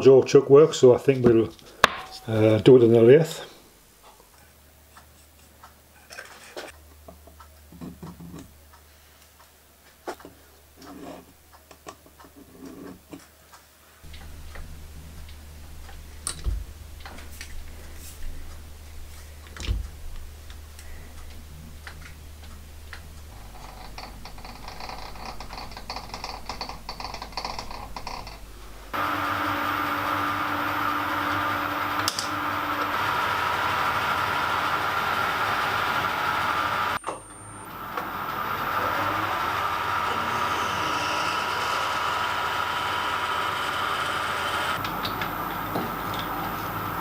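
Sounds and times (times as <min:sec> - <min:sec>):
steady low hum: 0:14.0 - 0:24.8.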